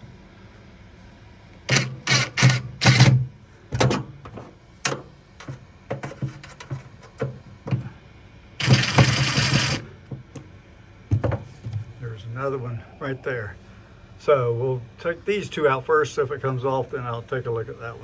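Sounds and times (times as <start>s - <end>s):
steady mechanical noise: 0.0s - 18.0s
screws clicking and rattling: 1.7s - 3.1s, 8.6s - 9.8s.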